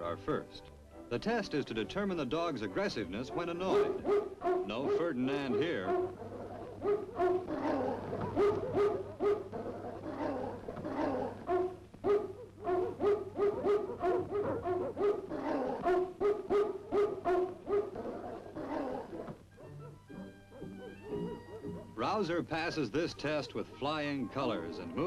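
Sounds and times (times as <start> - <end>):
dog barking aggressively: 3.3 - 22.0.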